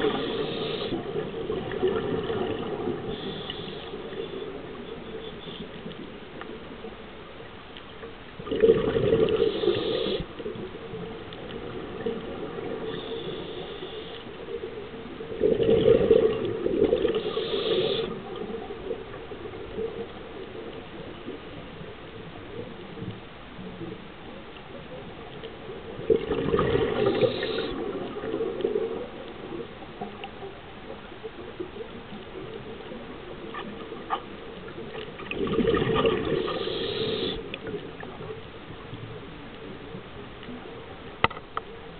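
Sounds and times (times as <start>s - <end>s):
steady hiss: 0.0s - 1.7s, 2.3s - 8.0s, 9.2s - 15.3s, 16.4s - 26.0s, 26.9s - 34.9s, 36.1s - 41.9s
underwater exhaled bubbles rushing: 0.0s - 4.8s, 8.4s - 13.8s, 14.4s - 23.1s, 24.7s - 31.0s, 31.6s - 40.9s.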